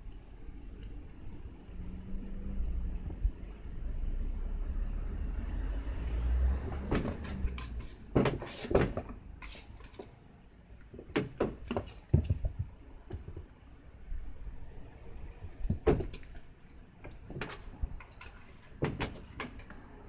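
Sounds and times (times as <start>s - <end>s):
kitten paws knocking on door: 11.0s - 13.5s.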